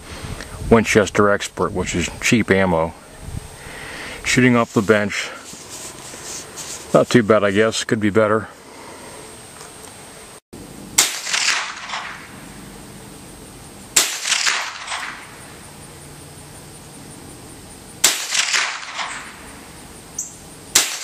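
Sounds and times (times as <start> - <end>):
rifle shots with echo: 11.0 - 12.4, 14.0 - 15.3, 18.0 - 19.4, 20.7 - 21.0.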